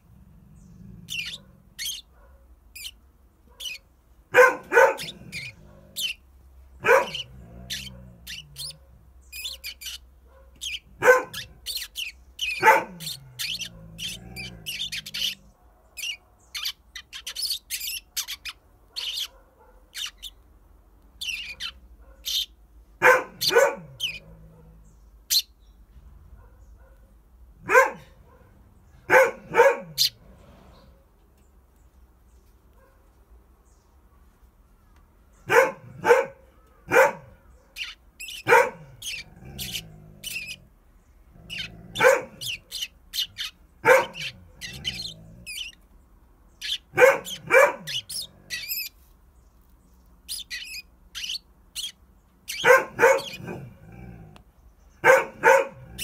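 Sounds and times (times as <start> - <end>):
sparrow chirping: 0.6 - 2.1, 2.7 - 20.5, 21.1 - 22.6, 23.3 - 24.2, 24.8 - 25.8, 29.9 - 30.2, 37.5 - 49.0, 49.8 - 53.7
dog barking: 1.2 - 2.6, 3.5 - 6.1, 6.8 - 11.8, 12.4 - 14.5, 18.9 - 20.0, 21.5 - 22.4, 23.0 - 24.8, 26.3 - 30.2, 32.7 - 33.1, 35.5 - 40.6, 41.5 - 42.8, 43.8 - 45.2, 46.7 - 48.6, 52.5 - 53.9, 55.0 - 56.0.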